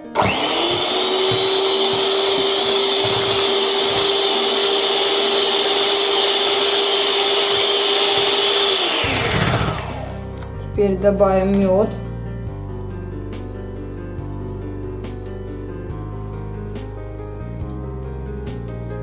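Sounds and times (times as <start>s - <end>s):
electric hand mixer whining: 0.0s - 10.4s.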